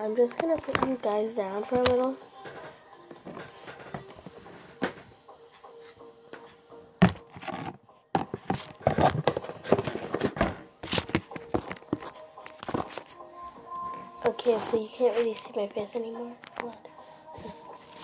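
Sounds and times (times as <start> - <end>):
knocks and rustles: 7.0 - 13.1.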